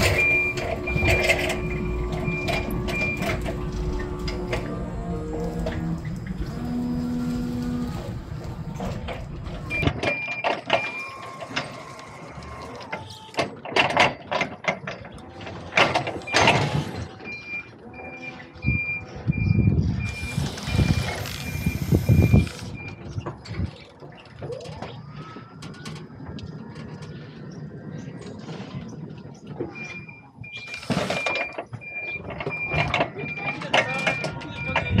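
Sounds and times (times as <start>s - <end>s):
forks and pallets clunking: 0.0s - 19.1s, 29.4s - 35.0s
forklift engine rumble: 0.0s - 35.0s.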